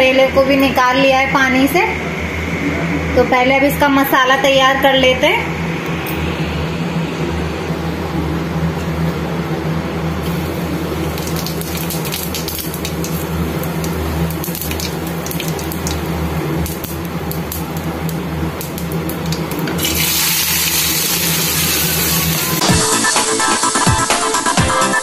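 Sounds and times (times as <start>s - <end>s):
low steady hum: 0.0s - 22.6s
hot oil crackling: 10.2s - 22.6s
onions sizzling in oil: 10.2s - 22.6s.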